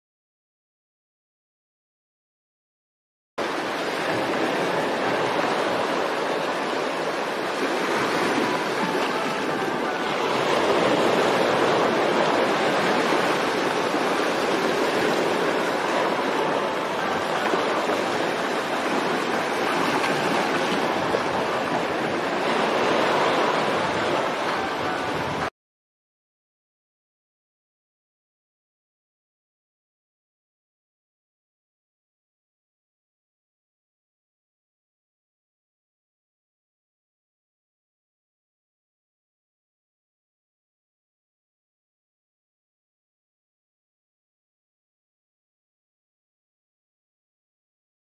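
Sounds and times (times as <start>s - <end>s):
rushing water: 3.4s - 25.5s.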